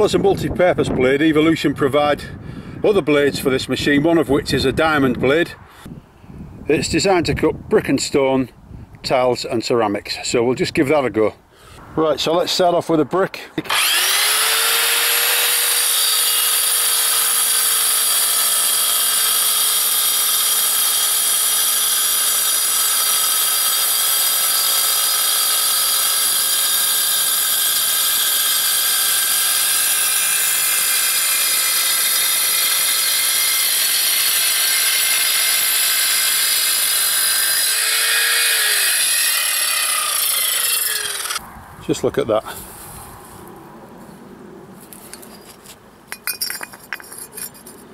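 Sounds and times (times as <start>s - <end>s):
saw grinding through brick: 13.6s - 41.4s.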